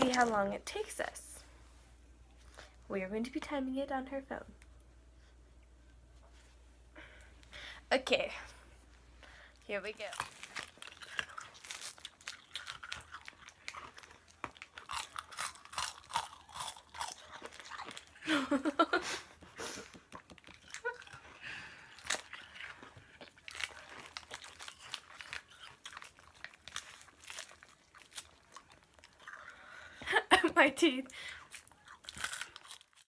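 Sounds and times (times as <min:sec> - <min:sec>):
ice crunching while chewing: 0:10.0 - 0:18.2, 0:20.2 - 0:29.7, 0:31.3 - 0:33.0.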